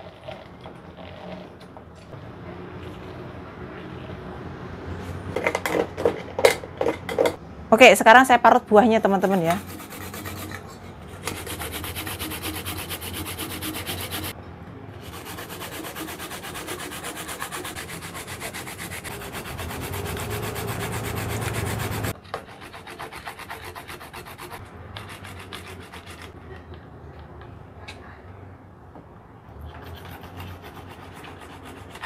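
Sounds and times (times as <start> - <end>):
fruit grating on metal grater: 9.2 - 14.4, 15.0 - 26.4, 29.8 - 32.0.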